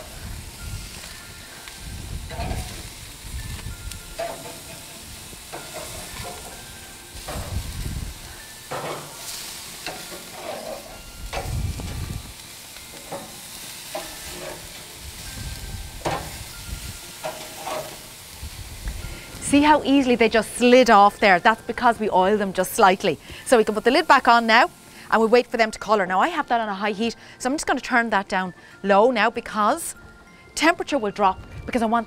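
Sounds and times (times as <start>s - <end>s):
burgers sizzling on a grill: 0.0s - 27.9s
metal spatula scraping grill grates: 0.1s - 20.6s.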